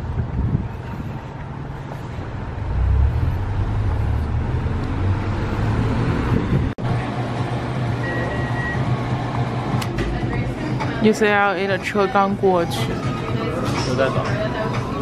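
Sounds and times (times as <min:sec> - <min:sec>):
road traffic rumble: 0:00.0 - 0:15.0
car passing: 0:01.0 - 0:06.8.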